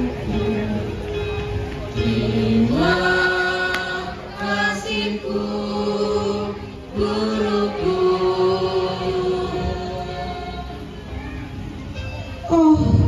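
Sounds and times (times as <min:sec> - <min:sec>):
people singing over a pa: 0:00.0 - 0:01.3, 0:01.9 - 0:11.1.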